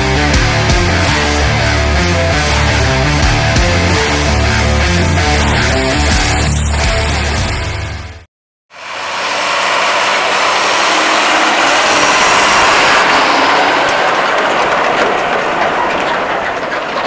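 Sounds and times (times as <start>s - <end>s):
tractor driving past: 8.7s - 17.0s.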